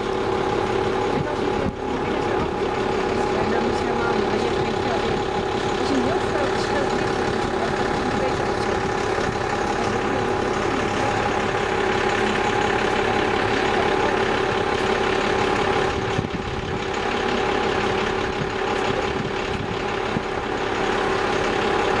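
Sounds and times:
machine humming: 0:00.0 - 0:22.0.

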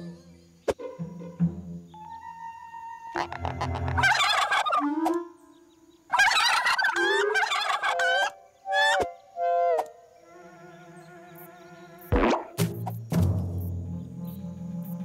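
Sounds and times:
cartoon turkey gobbling: 0:00.7 - 0:05.4, 0:06.1 - 0:10.0.

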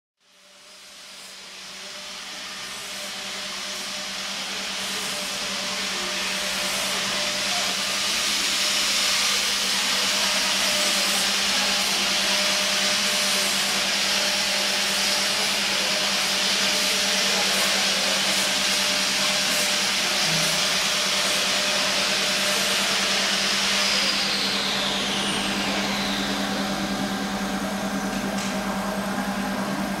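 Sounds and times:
machine hum: 0:05.7 - 0:30.0.

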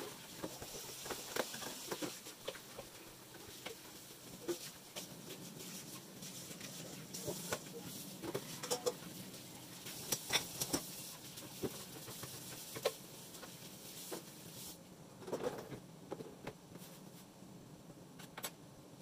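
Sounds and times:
tap water running: 0:00.0 - 0:14.6
pot and dishes clinking: 0:08.5 - 0:09.0.

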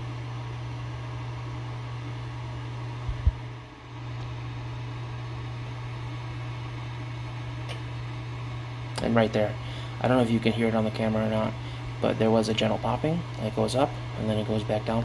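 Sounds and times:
cooling fan humming: 0:00.0 - 0:15.0
short low thumps: 0:03.0 - 0:03.5.

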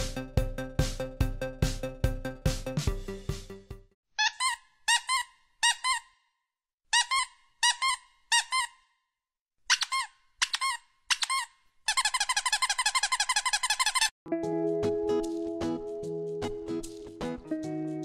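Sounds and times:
high-pitched squeaks: 0:04.2 - 0:06.2, 0:07.0 - 0:08.9, 0:09.7 - 0:14.1.

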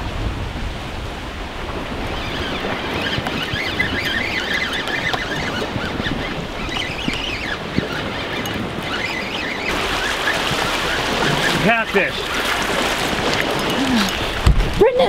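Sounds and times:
waves washing against rocks: 0:00.0 - 0:15.0
wind buffeting microphone: 0:00.0 - 0:15.0
faint high wavering squeak: 0:02.1 - 0:11.5.

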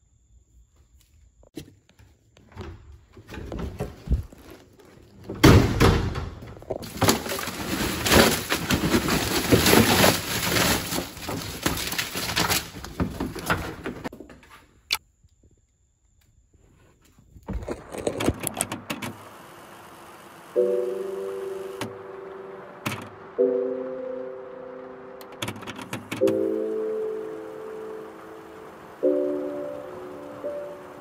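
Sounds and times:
cardboard and plastic rustling: 0:03.0 - 0:05.6, 0:06.5 - 0:14.1, 0:17.2 - 0:19.2.

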